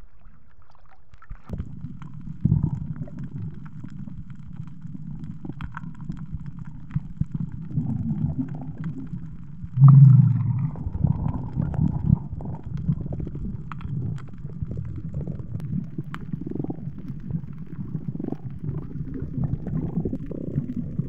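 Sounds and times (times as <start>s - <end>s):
muffled underwater rumble: 0.0s - 21.0s
low rush of water: 9.8s - 11.7s.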